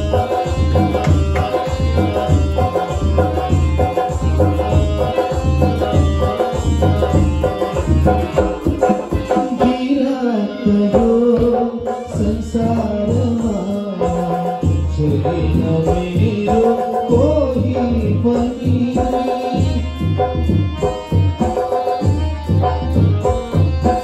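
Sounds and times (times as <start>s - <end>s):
electronic keyboard playing: 0.0s - 24.0s
tabla drumming: 0.0s - 24.0s.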